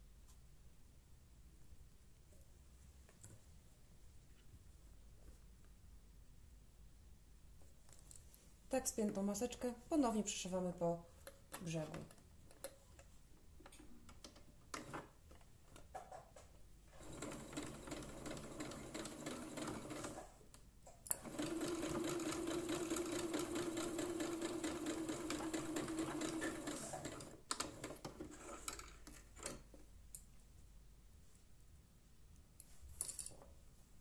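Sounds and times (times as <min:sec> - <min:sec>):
sewing machine stitching: 0:16.9 - 0:20.4, 0:21.1 - 0:29.5.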